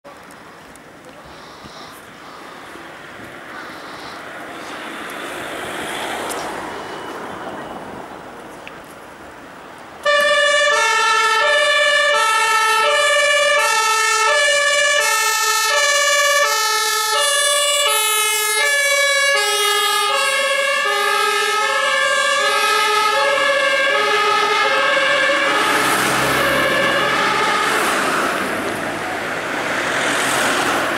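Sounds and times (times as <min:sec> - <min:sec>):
vehicle engine and tyre noise: 0:00.0 - 0:30.9
two-tone emergency horn: 0:10.0 - 0:14.5, 0:15.6 - 0:27.4.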